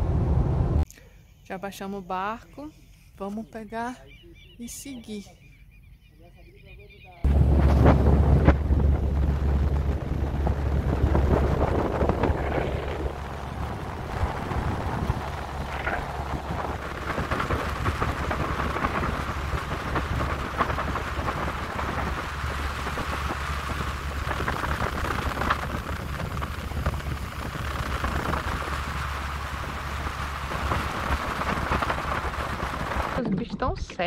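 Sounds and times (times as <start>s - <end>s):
wind buffeting microphone: 7.2s - 33.2s
outboard motor running: 7.3s - 33.2s
water rushing past hull: 7.3s - 33.2s.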